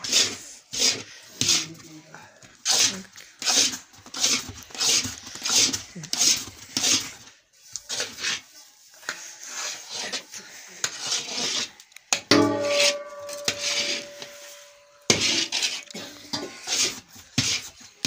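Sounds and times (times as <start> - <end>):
metal spatula scraping pan: 0.0 - 1.7, 2.6 - 18.0
metal pan ringing: 12.3 - 15.1.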